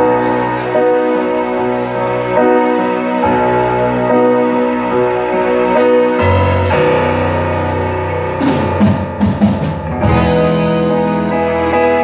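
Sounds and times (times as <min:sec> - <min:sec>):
bass guitar: 0:00.0 - 0:12.0
guitar chords: 0:00.0 - 0:12.0
keyboard chords: 0:00.0 - 0:12.0
drum hits: 0:08.4 - 0:11.0.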